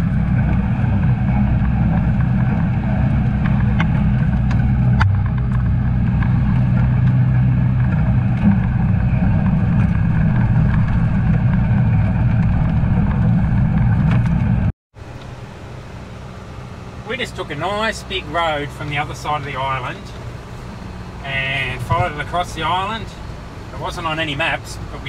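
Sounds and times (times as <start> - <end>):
truck knocks and rattles: 0.0 - 14.7
truck diesel engine droning: 0.0 - 25.0.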